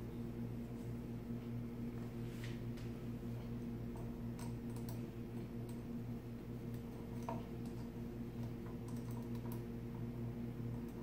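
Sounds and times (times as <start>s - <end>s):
low electrical hum: 0.0s - 11.0s
machine clicks and taps: 3.9s - 5.0s, 6.6s - 10.1s.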